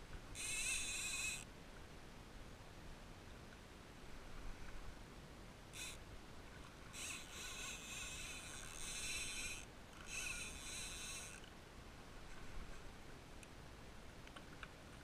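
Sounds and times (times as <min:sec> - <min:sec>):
fishing reel buzzing: 0:00.4 - 0:01.5, 0:05.8 - 0:06.0, 0:06.9 - 0:11.5.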